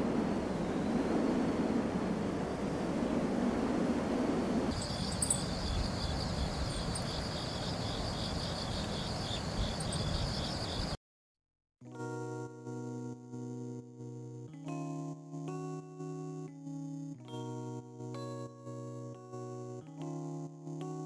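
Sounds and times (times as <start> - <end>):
low rushing wind: 0.0 - 11.0
insects chirping: 4.7 - 11.0.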